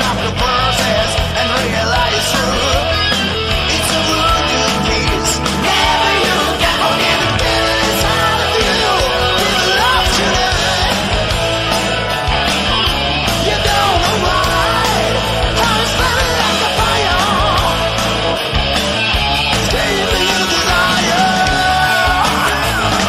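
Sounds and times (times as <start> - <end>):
hard rock band playing: 0.0 - 23.0
electric lead guitar bending notes: 0.3 - 23.0.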